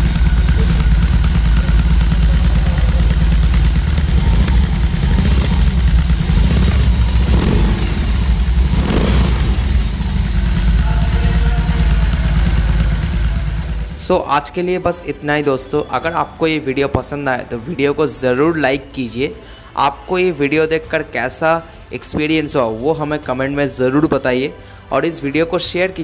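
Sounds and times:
motorcycle engine idling and revving: 0.0s - 14.6s.

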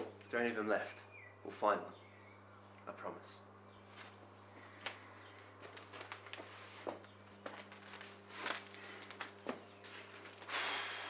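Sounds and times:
low steady hum: 0.0s - 11.0s
soft clicks and rustles: 3.9s - 10.5s.

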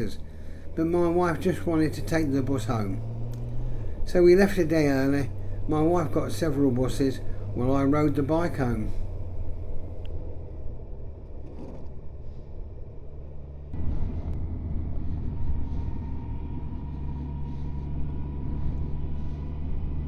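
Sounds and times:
motorcycle engine and road rumble: 0.0s - 20.0s.

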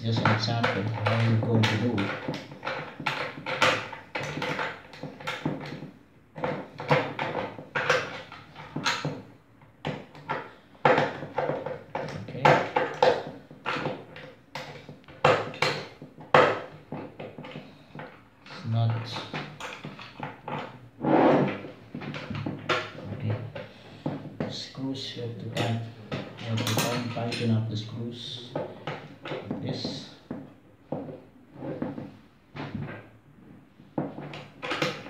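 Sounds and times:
metal clamp knocking and scraping: 0.1s - 24.6s, 25.4s - 27.6s, 33.8s - 35.0s.

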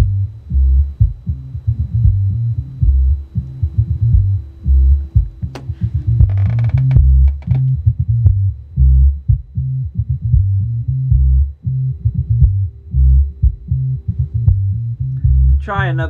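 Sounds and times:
deep bass notes from subwoofer: 0.0s - 16.0s
microphone overload pops: 5.2s - 8.4s.

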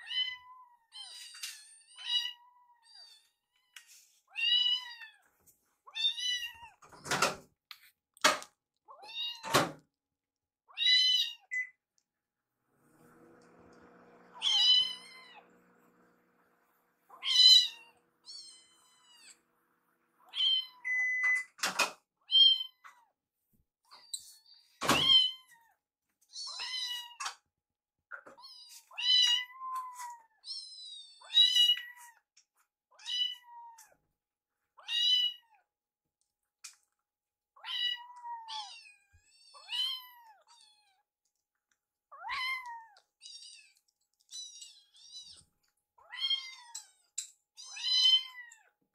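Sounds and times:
kittens meowing: 14.4s - 15.5s, 17.1s - 19.4s, 20.2s - 21.1s, 42.1s - 43.7s.

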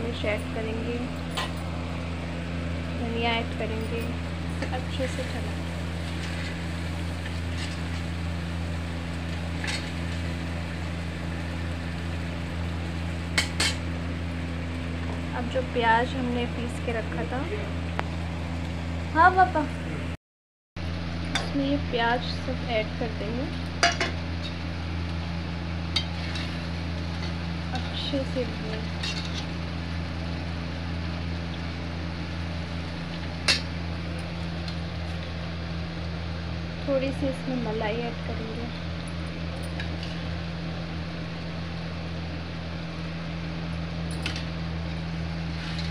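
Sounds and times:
low machine hum: 0.0s - 20.2s, 20.8s - 45.9s
metal spatula scraping a pot: 7.2s - 8.1s, 29.0s - 29.5s.

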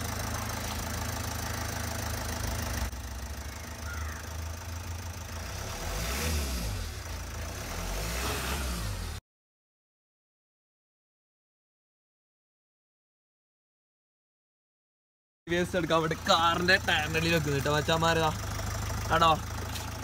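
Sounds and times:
car engine running at low speed: 0.0s - 9.2s, 15.5s - 20.0s.

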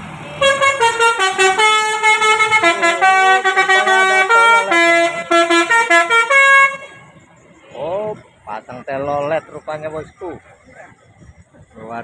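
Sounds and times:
multi-tone air horns playing a tune: 0.4s - 7.1s.

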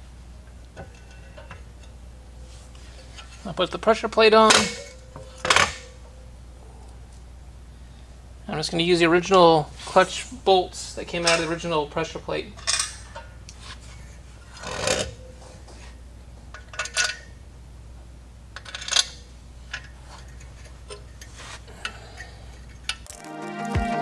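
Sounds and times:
metal clinks and scrapes: 18.6s - 23.3s
background music: 23.1s - 24.0s.

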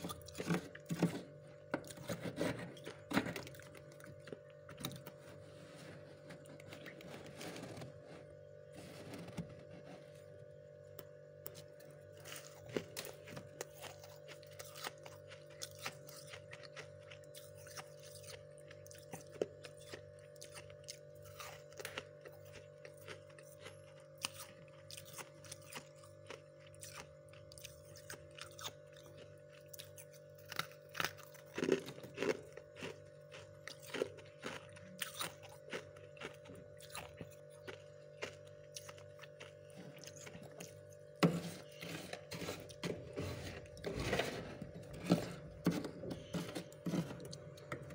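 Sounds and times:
frost crunching by hand: 0.0s - 10.4s, 11.0s - 47.9s
steady hum: 0.0s - 47.9s.

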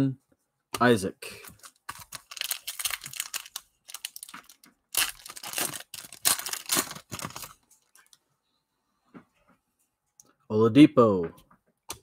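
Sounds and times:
plastic wrapper tearing and crinkling: 1.4s - 8.2s.

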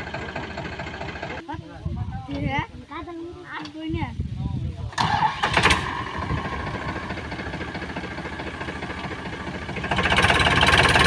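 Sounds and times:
tractor diesel engine knocking: 0.0s - 1.4s, 5.0s - 11.0s.

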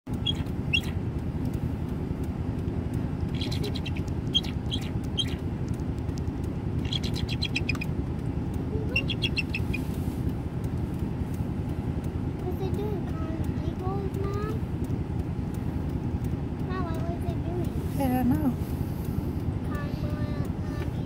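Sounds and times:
eagle piping chirps: 0.1s - 1.0s, 3.2s - 5.5s, 6.7s - 8.0s, 8.9s - 10.1s
steady low rumble: 0.1s - 21.0s.

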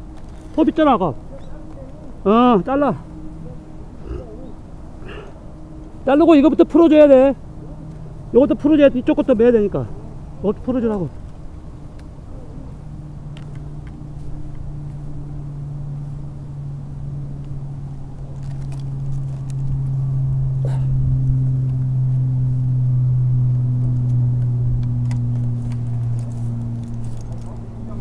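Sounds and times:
clicks of rope and climbing gear: 0.0s - 2.1s, 13.3s - 15.0s, 18.2s - 20.0s, 24.0s - 28.0s
engine droning: 0.0s - 28.0s.

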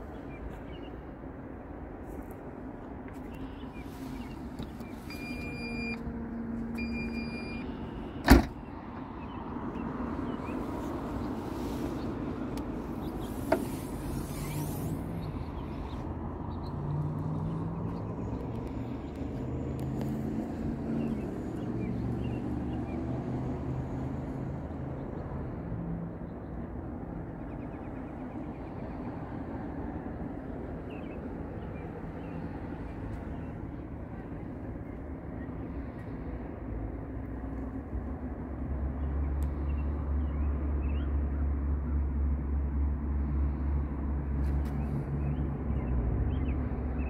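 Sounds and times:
short electronic beeps: 5.1s - 6.0s, 6.8s - 7.7s
tailgate slamming shut: 8.2s - 8.6s.

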